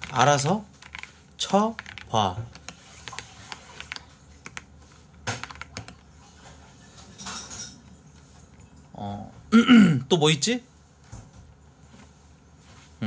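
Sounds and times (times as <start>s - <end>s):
keyboard key clicks: 3.8s - 6.0s.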